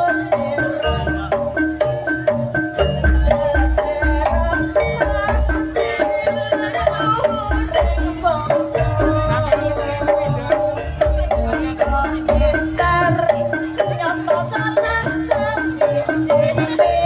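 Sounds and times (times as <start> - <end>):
hand-drum beats: 0.0 - 17.0.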